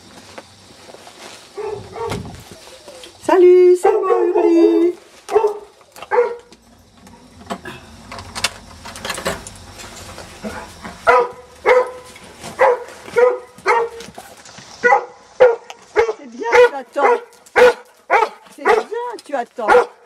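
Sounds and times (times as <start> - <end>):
dog barking: 1.6 - 2.2, 3.8 - 6.5, 11.0 - 14.1, 14.8 - 19.0, 19.6 - 20.0.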